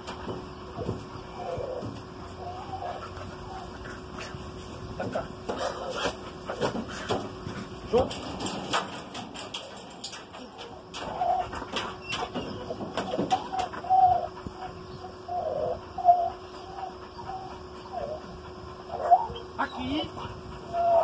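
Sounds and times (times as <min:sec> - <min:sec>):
dove cooing: 0:00.8 - 0:04.2, 0:08.1 - 0:18.2.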